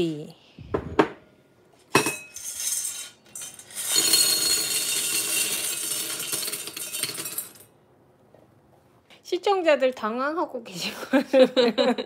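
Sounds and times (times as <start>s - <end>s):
plastic pieces clattering on steel: 2.4s - 7.7s.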